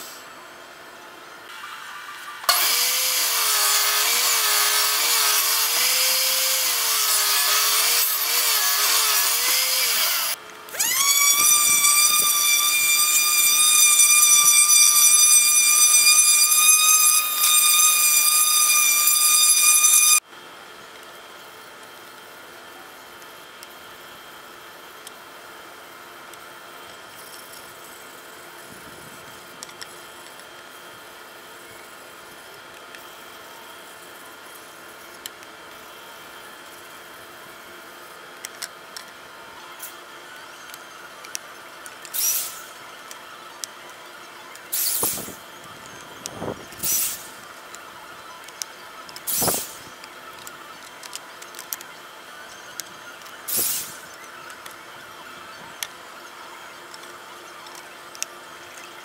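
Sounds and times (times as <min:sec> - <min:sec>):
electric drill squealing into wood: 0:02.4 - 0:20.2, 0:42.0 - 0:42.8, 0:44.7 - 0:47.4, 0:49.2 - 0:49.9, 0:52.6 - 0:54.1.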